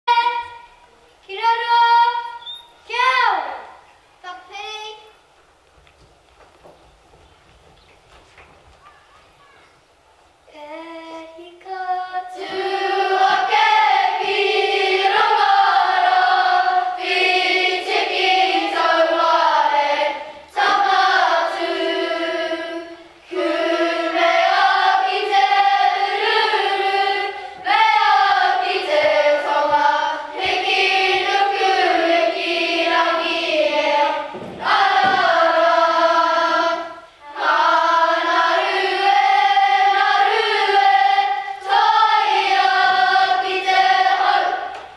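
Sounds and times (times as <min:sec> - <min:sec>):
children singing together: 0:10.6 - 0:44.9.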